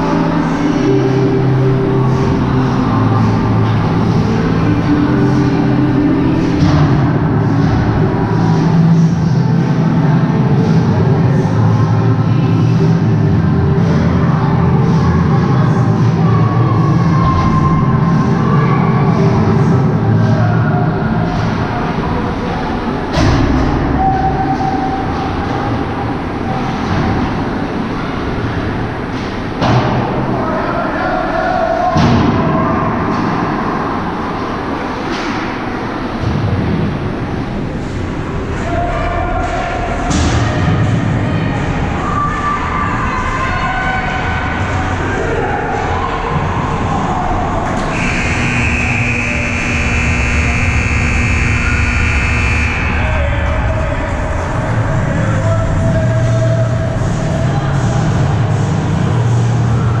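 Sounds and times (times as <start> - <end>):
ice hockey rink rumble: 0.0 - 60.0
ice rink buzzer: 47.9 - 53.1
faint held tone: 47.9 - 53.2.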